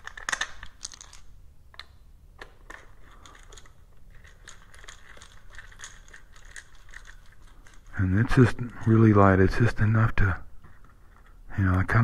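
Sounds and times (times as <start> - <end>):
small clicks and rustles of hands: 0.0 - 9.0.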